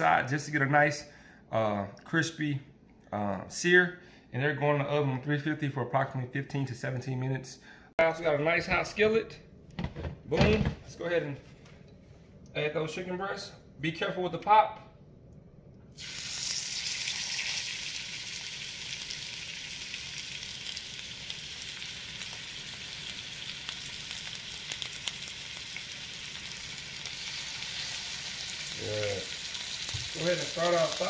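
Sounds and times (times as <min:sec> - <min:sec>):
chicken sizzling in oil: 0:16.0 - 0:31.0.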